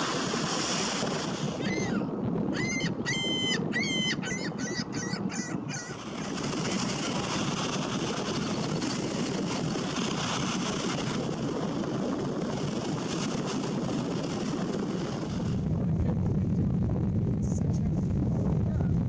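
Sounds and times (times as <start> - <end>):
waves washing up beach: 0.0 - 1.7, 5.9 - 15.5.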